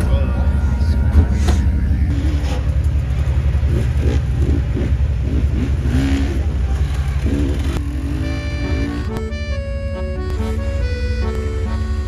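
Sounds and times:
off-road engine rumbling: 0.0s - 12.0s
voices calling: 0.0s - 12.0s
music: 8.0s - 12.0s.

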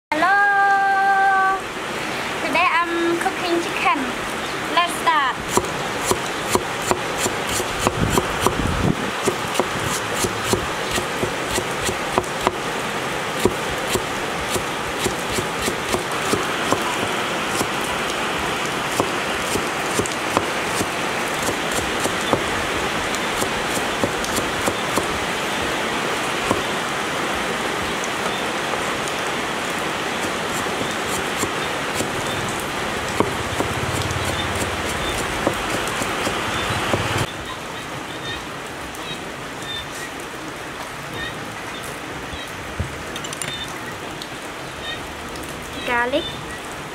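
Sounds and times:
cleaver knocking on wooden board: 9.2s - 12.6s, 33.2s - 37.1s.

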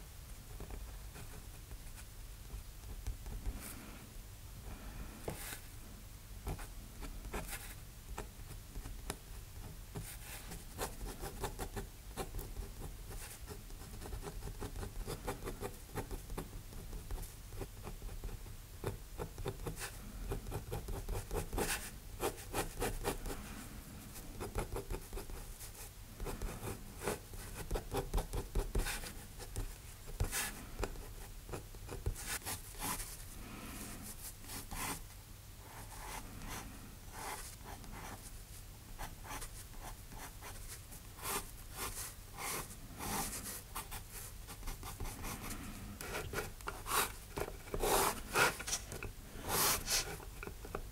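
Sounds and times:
dip pen scratching on paper: 44.5s - 50.8s.

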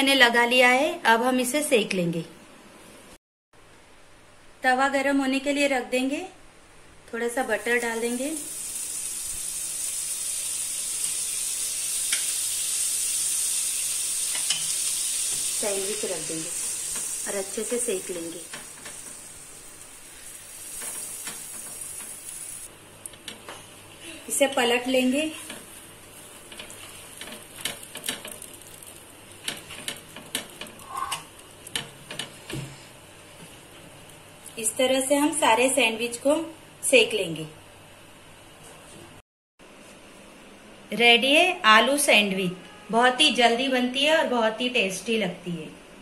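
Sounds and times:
butter sizzling on a griddle: 7.9s - 22.7s, 25.3s - 32.4s.

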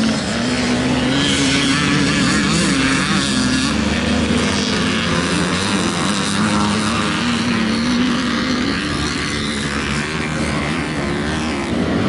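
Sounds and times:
motorcycle engines racing: 0.0s - 12.0s.

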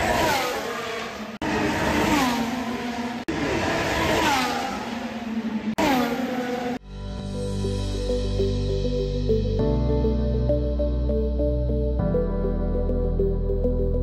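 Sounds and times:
racing car engines at speed: 0.0s - 6.8s.

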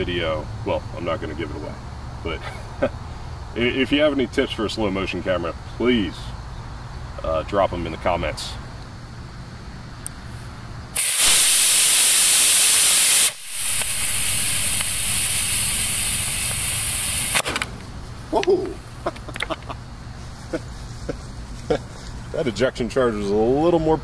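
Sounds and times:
quieter delay charge hiss: 9.0s - 19.3s
rocket motor rushing hiss: 10.9s - 17.8s
ejection charge crack: 11.0s - 17.9s.

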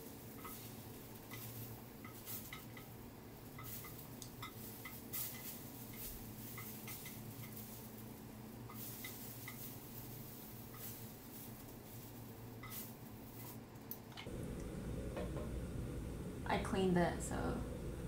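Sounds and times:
pancakes sizzling in a pan: 0.0s - 13.7s
chopsticks clicking against a pan: 1.2s - 7.6s.

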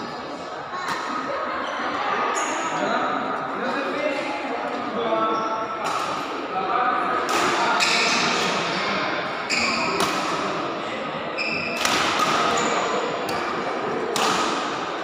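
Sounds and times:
murmur of hall: 0.0s - 15.0s
shoes squeaking on court floor: 9.4s - 10.0s, 11.3s - 13.1s
racket striking shuttlecock: 9.8s - 10.4s, 13.3s - 14.8s.

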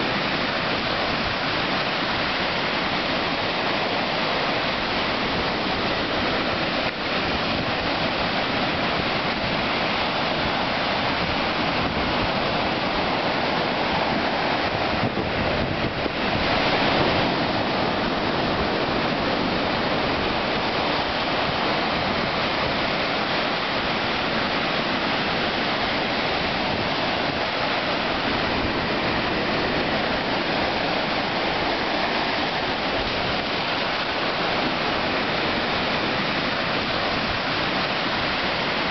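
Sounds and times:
ocean surf breaking on beach: 0.0s - 38.9s.

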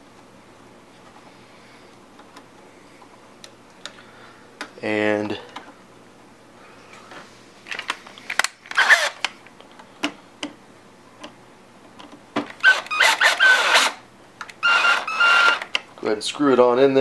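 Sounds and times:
powered screwdriver whine: 8.7s - 9.2s, 12.6s - 14.0s, 14.6s - 15.7s.

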